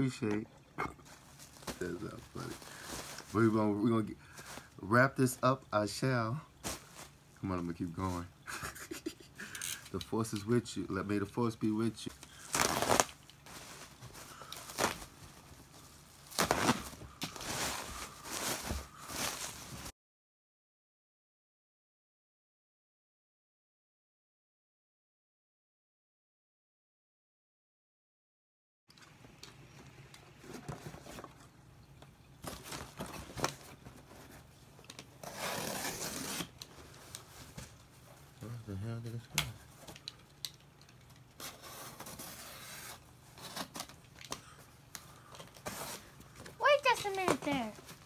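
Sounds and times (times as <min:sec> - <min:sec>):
bubble wrap crinkling: 0:01.0 - 0:03.7, 0:12.2 - 0:19.9, 0:32.4 - 0:38.6
cardboard rustling and scraping: 0:01.1 - 0:03.6, 0:12.4 - 0:19.9, 0:30.4 - 0:31.4, 0:32.4 - 0:38.2, 0:41.4 - 0:44.0, 0:45.4 - 0:48.0
cardboard scraping tear: 0:12.4 - 0:13.6, 0:16.3 - 0:18.8, 0:35.2 - 0:36.6, 0:41.4 - 0:43.9.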